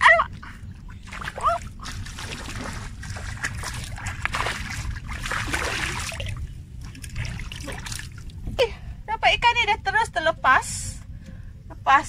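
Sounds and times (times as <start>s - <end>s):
steady low rumble: 0.0s - 12.0s
water sloshing and splashing: 0.3s - 8.6s.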